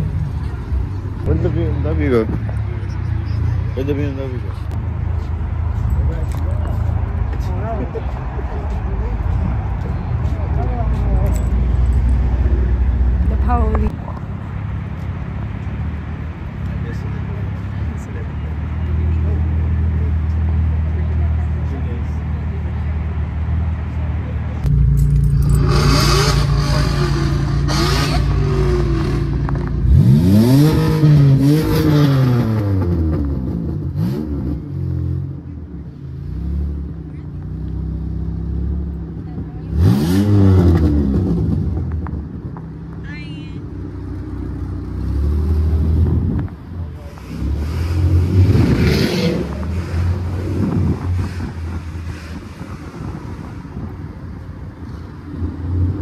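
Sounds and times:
car running with low hum: 0.0 - 56.0
car engine running and revving: 24.0 - 43.2.

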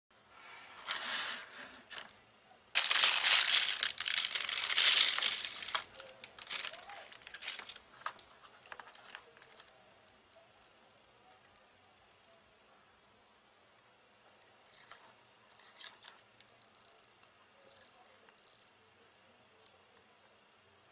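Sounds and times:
plastic bag crinkling: 2.8 - 9.2.

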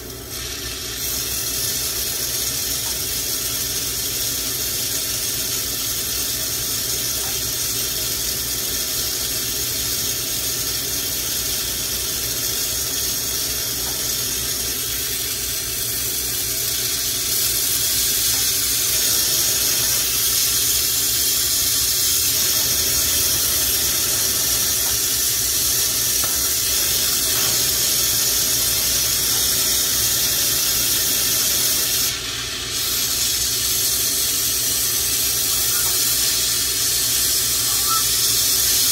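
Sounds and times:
torch flame hissing: 0.0 - 38.9.

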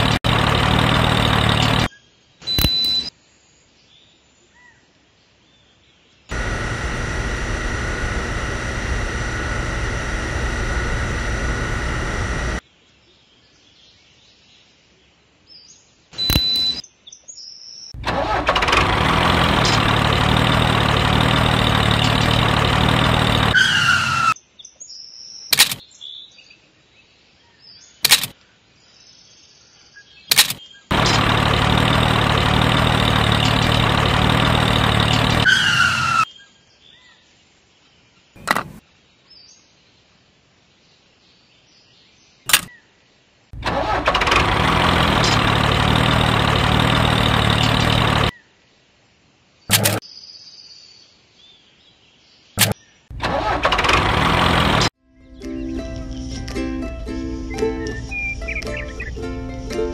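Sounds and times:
tractor engine running: 0.0 - 1.9, 6.3 - 12.6, 18.0 - 24.4, 30.3 - 36.2, 43.6 - 48.3, 49.7 - 50.0, 52.6 - 55.0
short clicks: 2.5 - 3.1, 16.2 - 16.8, 25.5 - 25.8, 28.0 - 28.4, 30.3 - 35.5, 42.5 - 42.7, 49.7 - 50.0, 52.6 - 54.9.

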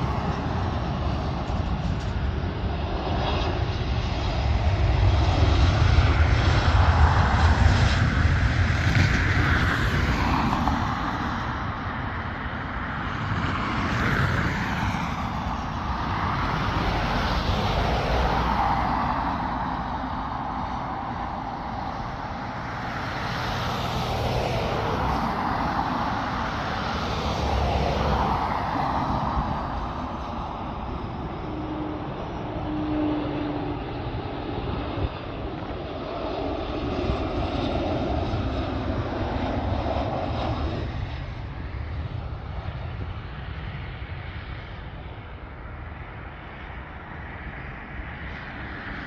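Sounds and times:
jet engines rushing: 0.0 - 49.0.

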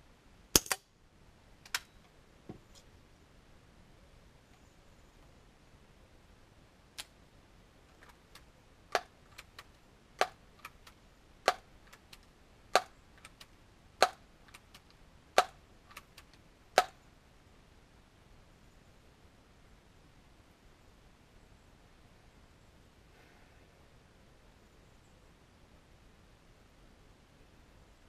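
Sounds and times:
faint clicks: 7.9 - 17.0.

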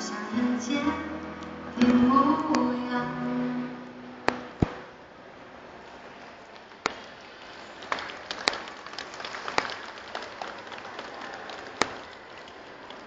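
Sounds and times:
crowd noise hum: 0.0 - 13.0
audience clapping: 7.0 - 13.0.

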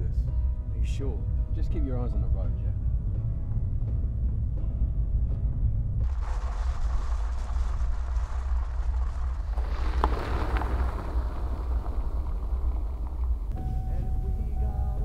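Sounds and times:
steady low rumble: 0.0 - 15.0
tyres crunching on gravel: 6.0 - 13.6.

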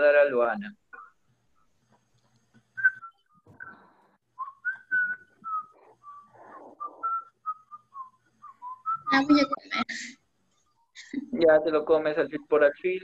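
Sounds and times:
person whistling a melody: 2.8 - 9.1.

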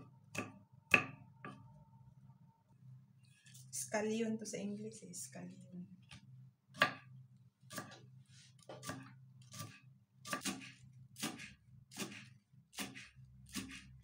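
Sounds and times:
knife chopping on wooden board: 0.0 - 1.6, 6.8 - 7.1, 7.7 - 8.0, 8.6 - 14.0.

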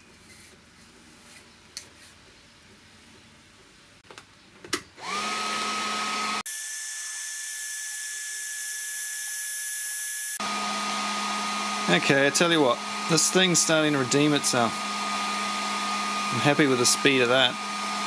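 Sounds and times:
heat gun fan whine: 4.7 - 18.0.

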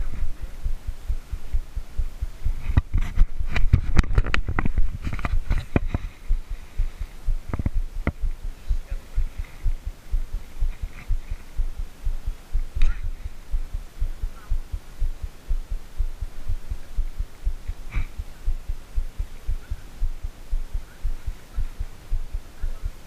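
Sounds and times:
low rumbling microphone noise: 0.0 - 23.0
sharp clicks and rustles: 2.2 - 8.5.

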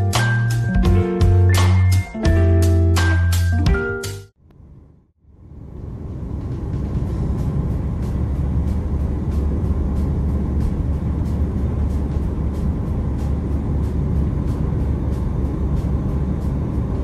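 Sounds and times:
music with light beat: 0.0 - 4.4, 6.4 - 17.0
car road and engine rumble: 4.4 - 17.0.

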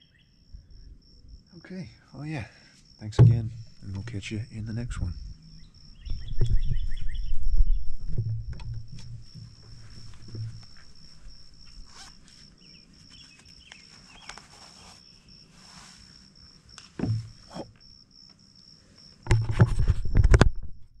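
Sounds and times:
insects trilling: 0.0 - 19.3
thuds on wooden planks: 3.2 - 3.8, 17.0 - 17.7
rustling and knocking at microphone: 3.2 - 4.2, 6.0 - 12.3, 16.9 - 17.9, 19.2 - 21.0
faint chirps: 10.8 - 16.1.

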